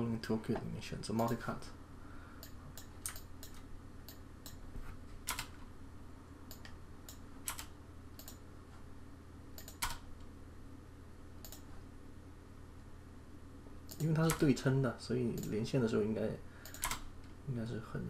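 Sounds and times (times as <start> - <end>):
steady low hum: 0.0 - 18.0
mouse and keyboard clicking: 9.6 - 10.0, 13.9 - 14.5, 16.6 - 17.0.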